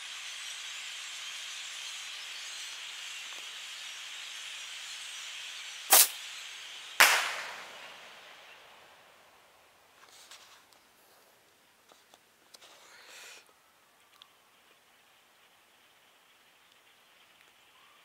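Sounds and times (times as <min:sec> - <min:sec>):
flock of birds chattering: 0:00.0 - 0:11.3, 0:12.6 - 0:18.0
firecracker bangs: 0:07.0 - 0:08.2.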